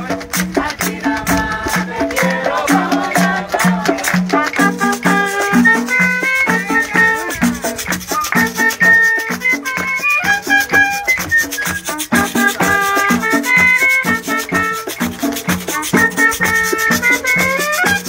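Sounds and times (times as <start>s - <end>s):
drum beating steady rhythm: 0.0s - 18.0s
high rattling percussion: 0.0s - 18.0s.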